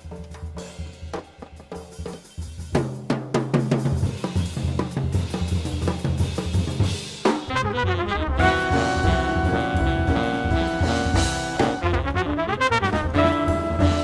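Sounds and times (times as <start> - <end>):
drum kit fills: 0.0 - 14.0
trumpet and saxophone long notes: 7.5 - 14.0
upright bass: 7.6 - 14.0.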